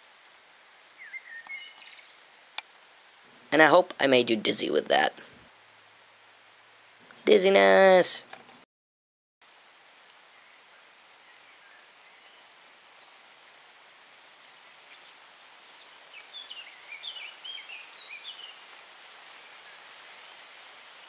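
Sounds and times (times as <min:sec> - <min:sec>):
light rain hissing: 0:00.0 - 0:08.6, 0:09.4 - 0:21.0
bird chirping: 0:00.3 - 0:02.2, 0:14.9 - 0:18.6.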